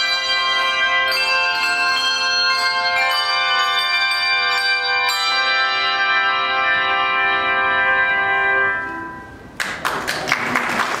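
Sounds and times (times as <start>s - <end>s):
handbell chord ringing: 0.0s - 9.4s
applause: 9.6s - 11.0s.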